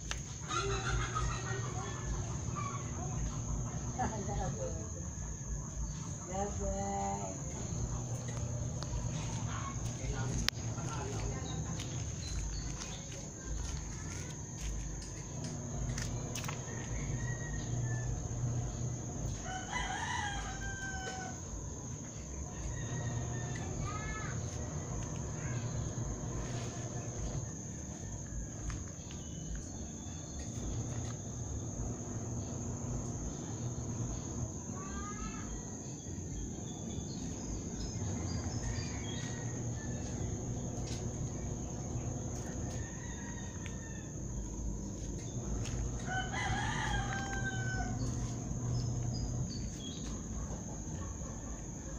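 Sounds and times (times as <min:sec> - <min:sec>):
high-pitched insect drone: 0:00.0 - 0:51.9
bird calls: 0:00.1 - 0:04.7
rooster crowing: 0:00.1 - 0:04.9, 0:14.5 - 0:36.3, 0:37.1 - 0:51.9.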